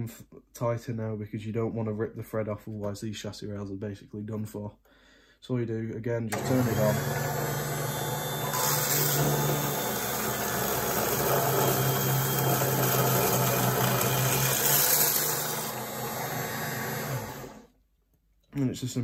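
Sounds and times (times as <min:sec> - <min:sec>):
drill press motor hum: 0:06.4 - 0:17.7.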